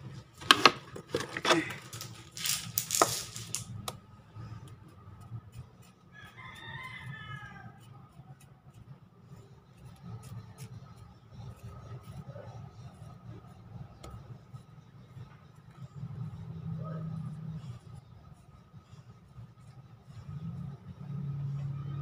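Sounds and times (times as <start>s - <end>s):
rooster crowing: 6.1s - 7.9s.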